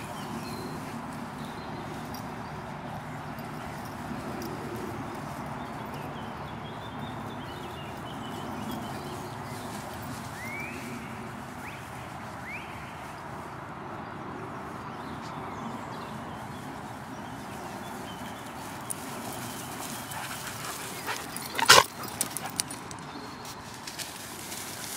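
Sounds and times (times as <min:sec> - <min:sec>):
dogs rustling in grass: 0:00.0 - 0:24.9.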